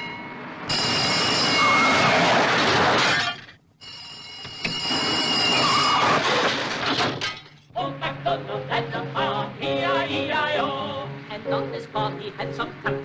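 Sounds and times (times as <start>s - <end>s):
high ringing tones: 0.0s - 2.1s, 3.8s - 6.1s.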